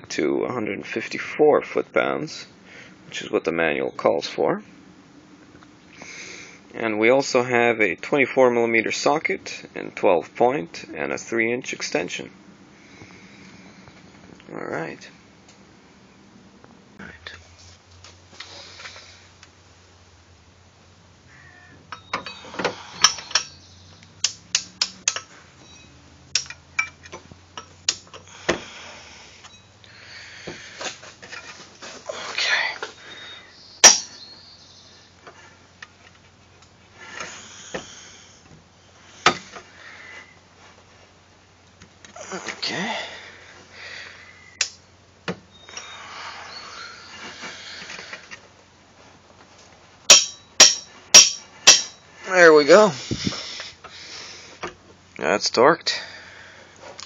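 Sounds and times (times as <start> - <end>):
soft rustling scrape: 17.4 - 19.3, 30.8 - 32.1
metal socket tools clinking: 23.0 - 23.6, 26.3 - 28.2, 33.8 - 34.2, 50.1 - 52.0.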